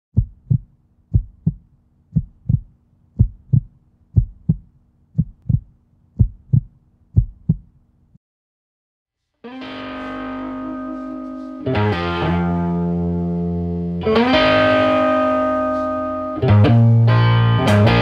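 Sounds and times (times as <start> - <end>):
heartbeat thumps: 0.1 - 7.7.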